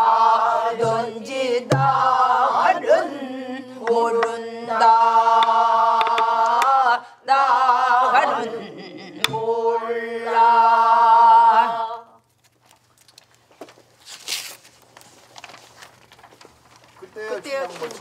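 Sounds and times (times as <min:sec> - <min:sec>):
group of voices singing: 0:00.0 - 0:12.2
paper rustling: 0:12.3 - 0:18.0.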